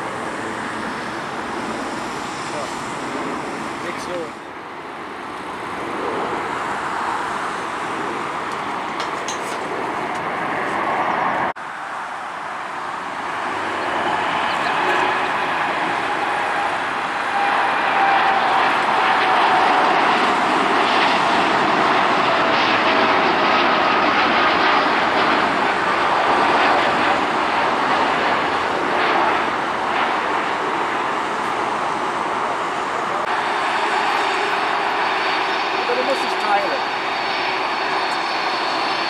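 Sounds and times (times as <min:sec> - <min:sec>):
jet engines at takeoff: 0:00.0 - 0:39.0
jet whine falling in pitch: 0:09.7 - 0:39.0.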